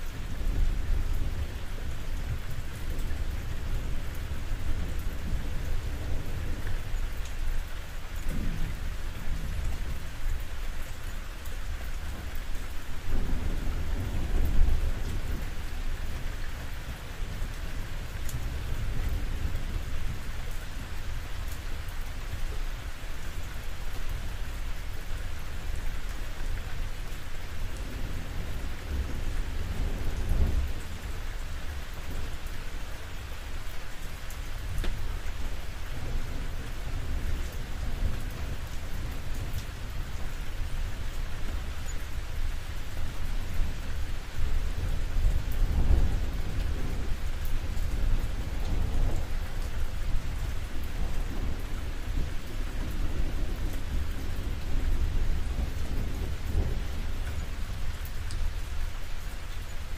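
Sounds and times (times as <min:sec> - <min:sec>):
rain falling on a roof: 0:00.0 - 0:59.9
low rumbling thunder: 0:08.2 - 0:10.2, 0:13.0 - 0:21.0, 0:27.6 - 0:32.6, 0:43.1 - 0:58.8.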